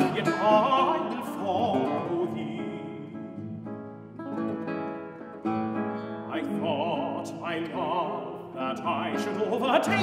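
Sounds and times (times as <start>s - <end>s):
classical guitar plucking: 0.0s - 10.0s
tenor voice singing with vibrato: 6.3s - 10.0s.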